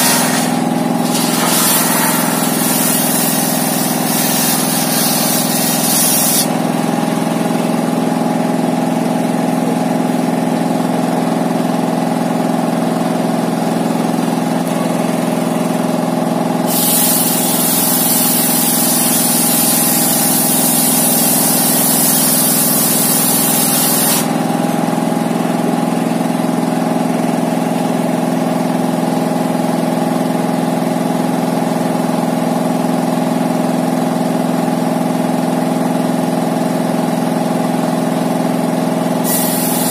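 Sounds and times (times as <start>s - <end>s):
circular saw ripping board: 0.0s - 6.6s
diesel engine running: 0.0s - 39.9s.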